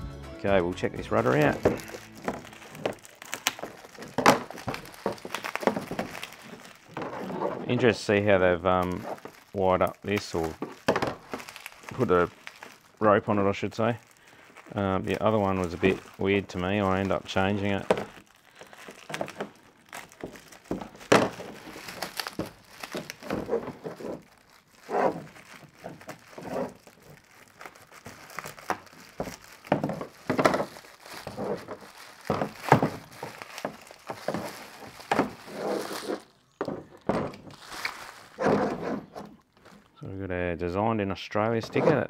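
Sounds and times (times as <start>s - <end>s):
handling knocks and thunks: 0.9s - 8.1s, 19.0s - 24.2s, 28.8s - 37.7s, 38.3s - 39.8s
rustling: 1.0s - 40.1s.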